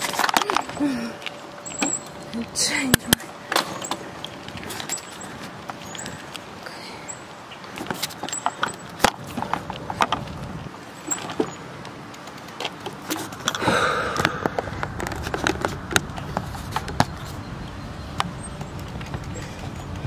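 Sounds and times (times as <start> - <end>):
steady low rumble: 13.4 - 20.0.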